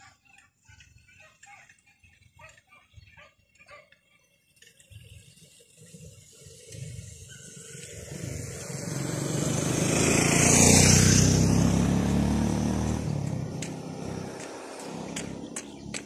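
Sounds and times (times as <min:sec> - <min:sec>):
motorcycle passing by: 0:05.5 - 0:16.0.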